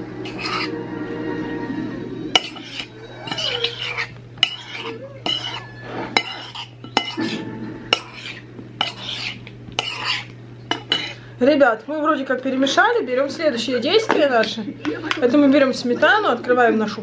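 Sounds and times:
spoon scraping bowl: 0.2s - 0.8s, 2.3s - 11.2s
spoon clinking against bowl: 2.4s - 11.2s.

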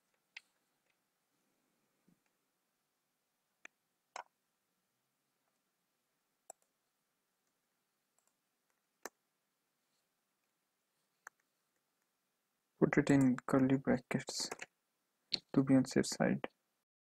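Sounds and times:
computer mouse and keyboard clicks: 3.6s - 4.3s, 14.5s - 14.7s.

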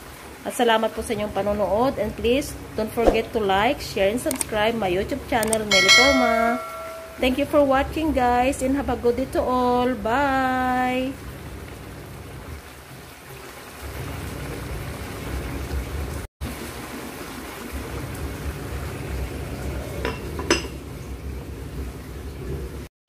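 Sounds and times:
glass lid clinking: 5.5s - 7.3s, 20.0s - 20.8s.

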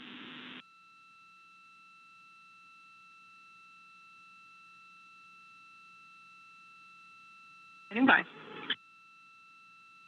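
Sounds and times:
faint steady electronic tone: 0.0s - 10.0s.

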